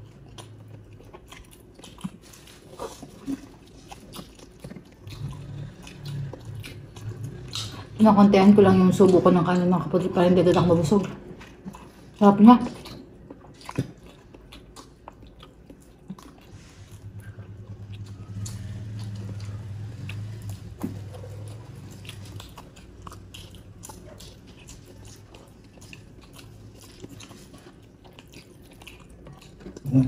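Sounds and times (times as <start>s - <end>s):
food crunching: 0.0s - 30.0s
wet chewing and biting: 0.0s - 30.0s
low hum: 16.5s - 26.0s.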